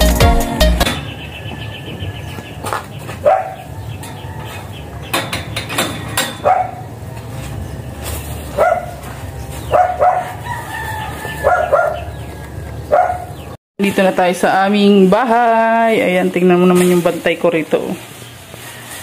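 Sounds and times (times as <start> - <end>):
dog barking: 3.2 - 3.7, 6.4 - 6.9, 8.5 - 9.0, 9.7 - 10.4, 11.4 - 12.1, 12.9 - 13.4.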